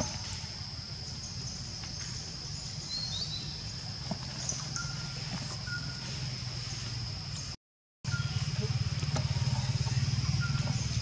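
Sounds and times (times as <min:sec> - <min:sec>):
bird chirps: 0:04.3 - 0:06.3, 0:08.1 - 0:11.0.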